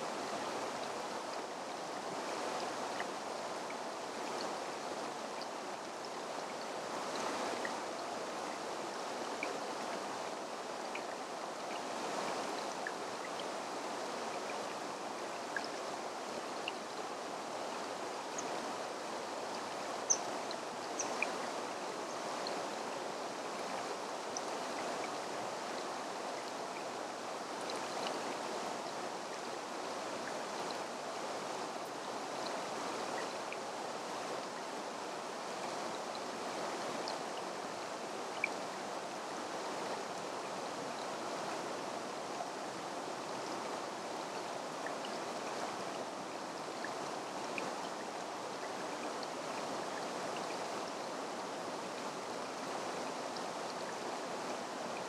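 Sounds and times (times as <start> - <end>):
mountain stream rushing: 0.0 - 55.0
faint small ticks: 19.5 - 21.5.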